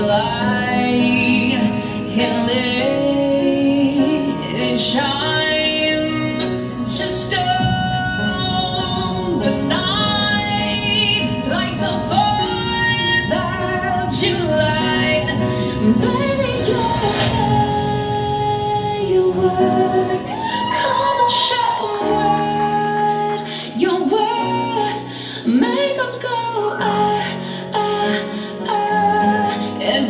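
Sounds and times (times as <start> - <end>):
woman singing over music: 0.0 - 30.0.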